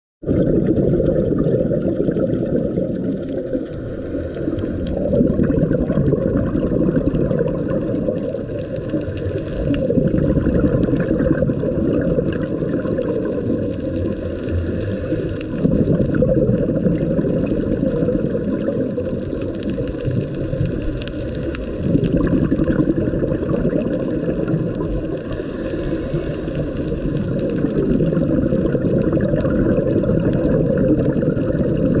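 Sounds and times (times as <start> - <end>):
underwater rumble and wash: 0.2 - 32.0.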